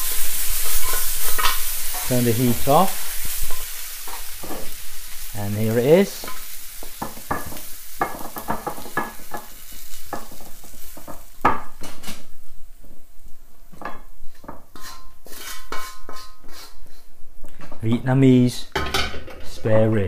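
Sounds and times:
spatula scraping against wok: 0.0 - 12.3, 14.2 - 17.2
faint sizzle: 0.0 - 20.0.

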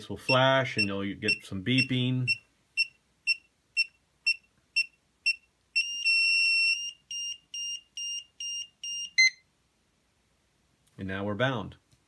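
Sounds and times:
electronic beeping: 0.3 - 9.4
held electronic tone: 0.3 - 9.4.

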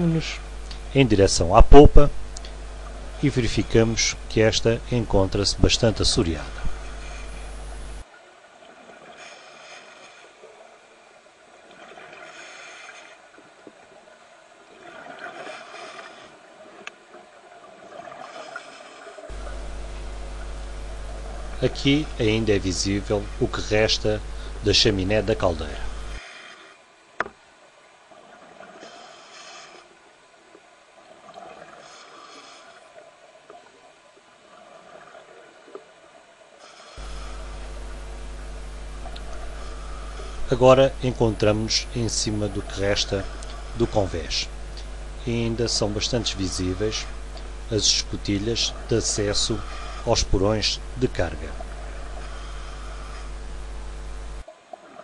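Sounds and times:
gurgling exhaust bubbles: 0.0 - 8.1, 19.2 - 26.2, 37.0 - 54.5
steady low hum: 0.0 - 55.0
diver breathing bubbling hiss: 9.0 - 10.6, 11.9 - 13.3, 15.0 - 16.4, 18.0 - 24.6, 25.8 - 26.8, 28.6 - 30.0, 31.5 - 33.0, 36.6 - 40.8, 42.6 - 45.0, 46.4 - 50.2, 51.5 - 53.6.

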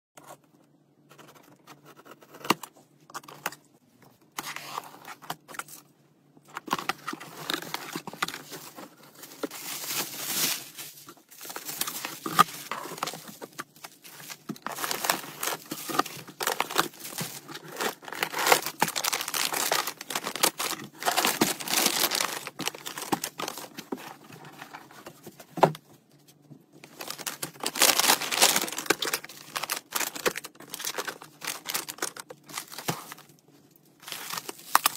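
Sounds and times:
plastic packaging crinkling: 6.5 - 25.0, 26.8 - 34.9
packing tape tearing: 14.4 - 23.7, 27.0 - 33.2.

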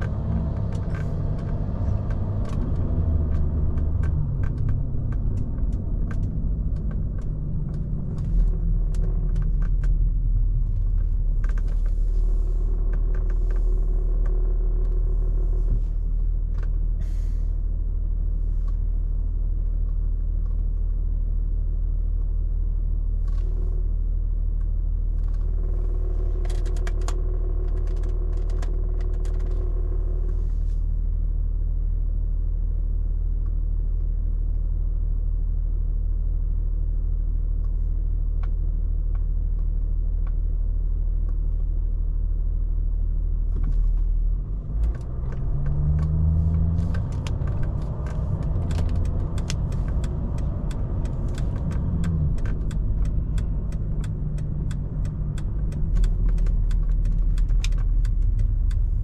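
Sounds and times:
car engine and road rumble: 0.0 - 59.0
small rattling clicks: 25.2 - 30.4, 43.6 - 59.0.

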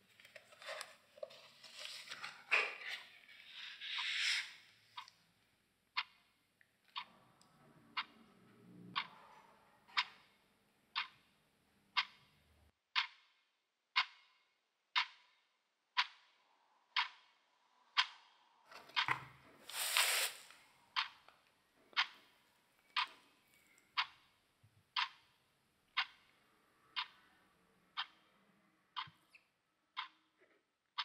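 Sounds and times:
clock ticking: 5.9 - 12.4, 13.0 - 13.3, 13.9 - 19.2, 20.9 - 23.3, 23.9 - 30.3.

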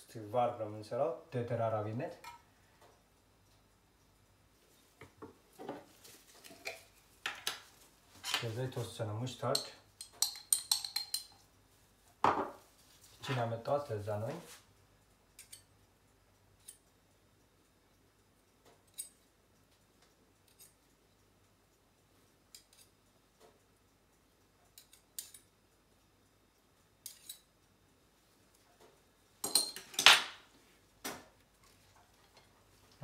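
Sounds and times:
metal utensil tapping jar: 9.6 - 11.4.

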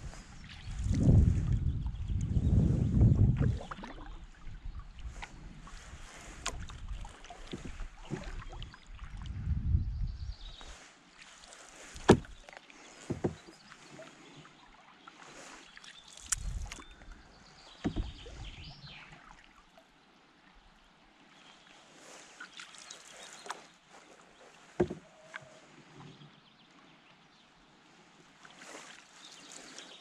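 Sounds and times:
paddle knocking on canoe hull: 12.0 - 12.4, 13.0 - 13.5, 17.8 - 18.5, 24.8 - 25.1.

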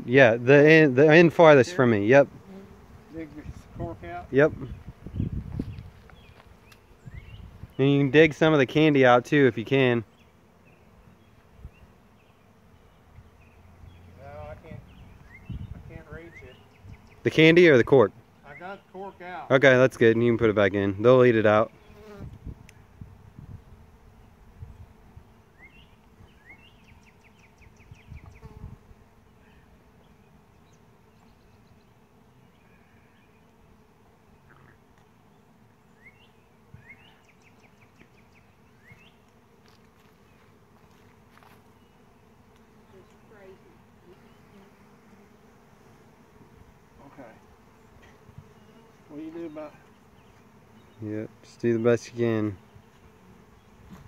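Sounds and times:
bees buzzing faintly: 0.0 - 54.0
bird chirps: 14.8 - 17.3, 25.6 - 28.5, 35.9 - 39.2.

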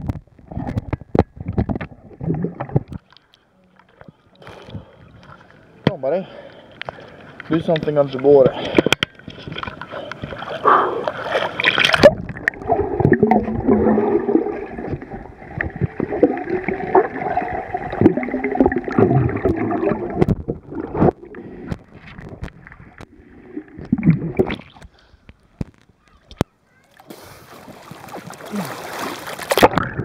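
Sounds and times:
water splash: 9.4 - 24.8, 27.0 - 30.0
muffled underwater gurgling: 12.0 - 24.8.

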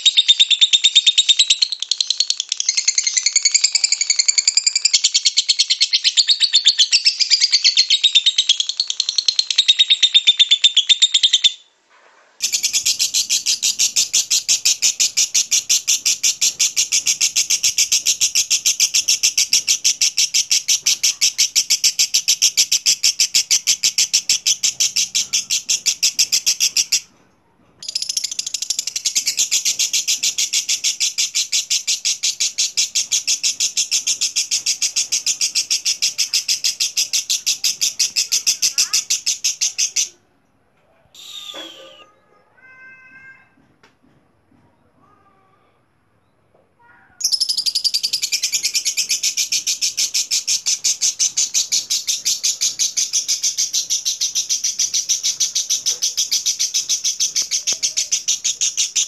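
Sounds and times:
lovebird rapid shrill chatter: 0.0 - 11.6, 12.4 - 27.1, 27.8 - 40.1, 41.2 - 42.0, 47.2 - 59.0
bird high song: 41.2 - 42.1, 47.2 - 59.0.

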